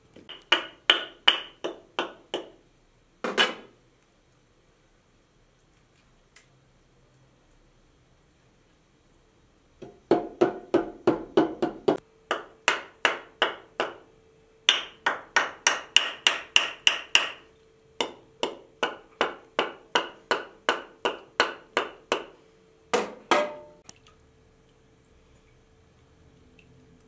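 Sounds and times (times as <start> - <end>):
bone knocking on metal pot: 0.3 - 2.6, 23.0 - 23.8.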